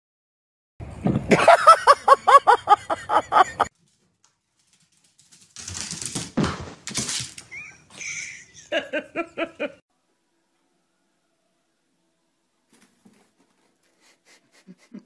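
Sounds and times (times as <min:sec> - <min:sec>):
rustling: 0:03.7 - 0:07.6.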